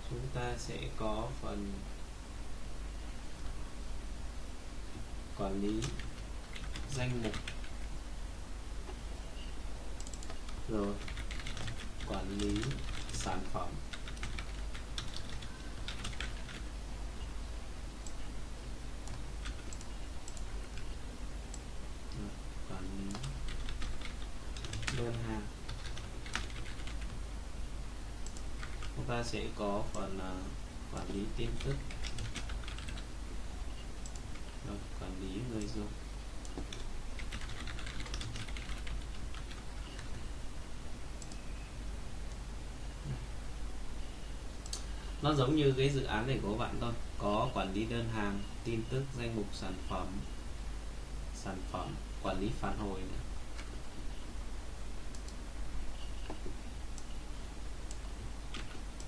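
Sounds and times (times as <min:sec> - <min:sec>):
steady low hum: 0:00.0 - 0:59.0
computer keyboard typing: 0:05.6 - 0:07.9, 0:10.0 - 0:16.7, 0:19.1 - 0:20.9, 0:22.9 - 0:27.2, 0:28.2 - 0:29.0, 0:31.0 - 0:33.0, 0:36.5 - 0:40.2.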